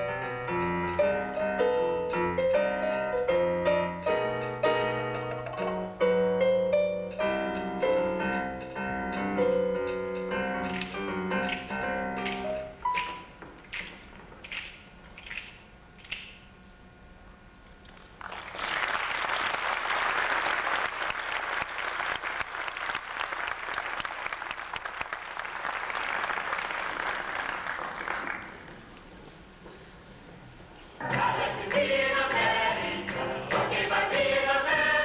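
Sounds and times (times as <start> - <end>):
audience applause: 18.0 - 29.0.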